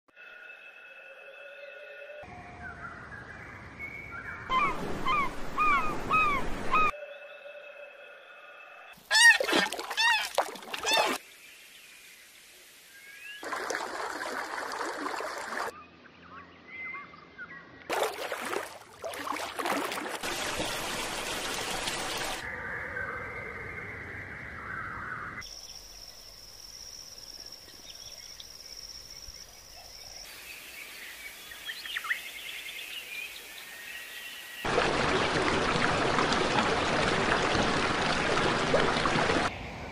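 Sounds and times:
outdoor noise: 0.1s - 39.9s
wild bird calls: 4.3s - 6.9s, 9.1s - 11.2s
running water: 9.0s - 15.7s, 17.9s - 22.4s, 34.6s - 39.5s.

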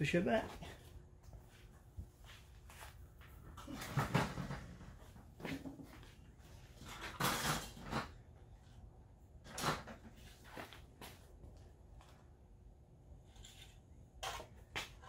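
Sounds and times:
bumps and scrapes: 2.2s - 8.4s.

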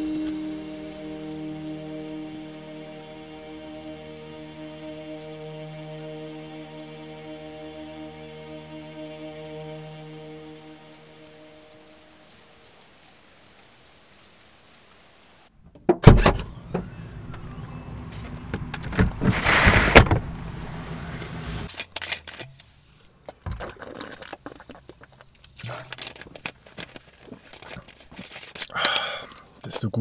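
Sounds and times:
low hum: 0.0s - 13.1s, 16.0s - 21.7s
short loud hiss: 19.1s - 21.7s.

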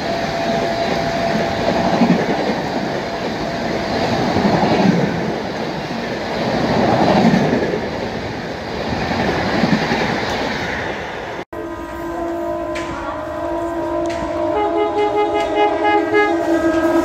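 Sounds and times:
train coaches rushing past: 0.0s - 17.0s
locomotive horn blast: 11.5s - 17.0s.

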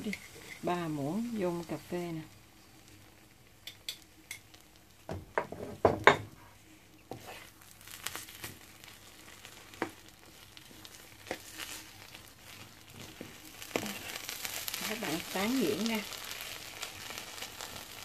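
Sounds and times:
spoon mashing beans in pan: 0.0s - 0.9s, 7.1s - 18.0s.

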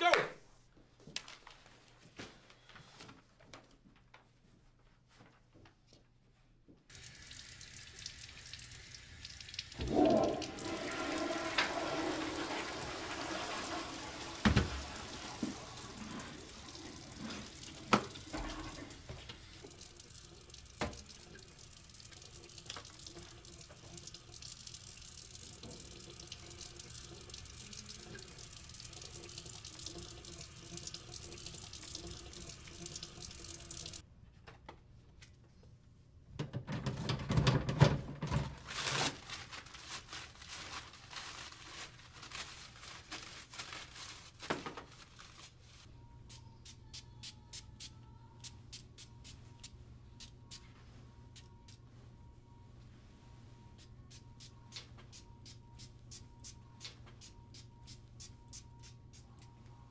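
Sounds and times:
faucet water running into sink: 6.9s - 34.0s.

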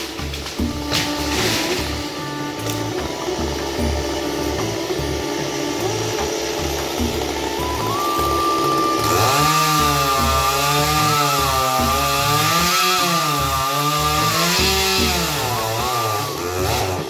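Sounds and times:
chainsaw cutting wood: 0.0s - 17.0s
steady high whine: 1.7s - 10.9s.

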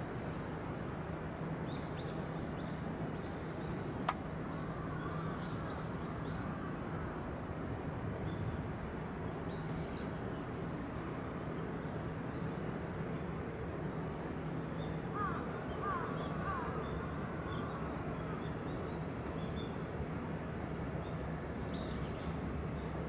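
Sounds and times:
sharp click: 4.0s - 4.2s.

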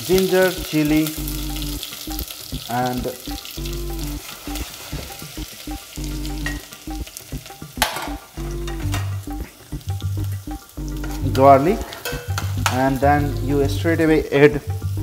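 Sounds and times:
food sizzling in hot oil: 0.0s - 15.0s
spoon stirring in pan: 6.4s - 12.8s.

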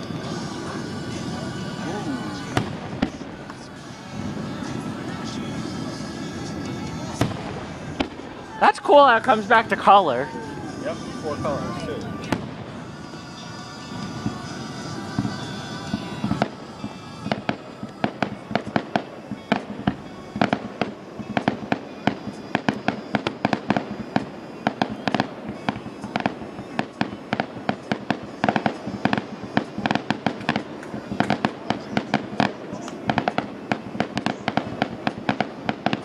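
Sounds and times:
fireworks bangs and pops: 0.0s - 36.0s.

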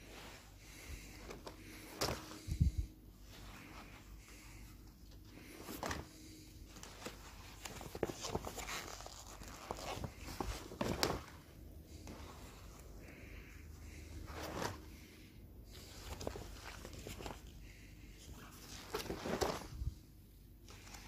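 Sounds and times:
leather hides rustling: 6.7s - 11.5s.

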